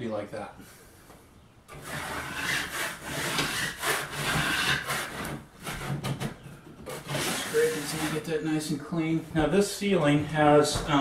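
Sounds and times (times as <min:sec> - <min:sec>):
putty knife scraping ceiling: 0:01.7 - 0:08.4.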